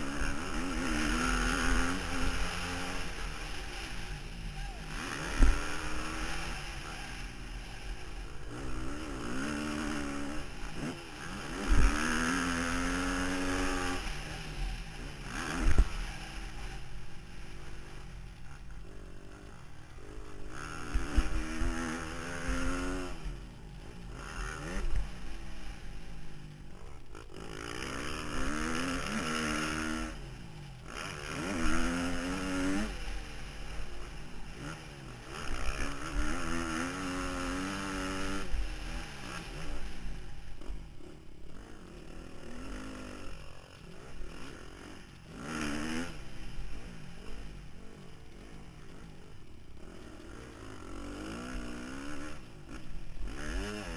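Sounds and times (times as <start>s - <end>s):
motorcycle engine revving: 0.0s - 53.9s.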